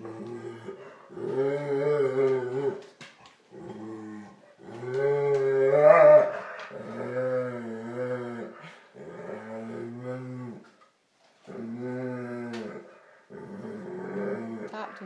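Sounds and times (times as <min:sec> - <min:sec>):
dog growling: 0:00.0 - 0:02.9, 0:03.5 - 0:10.7, 0:11.4 - 0:15.0.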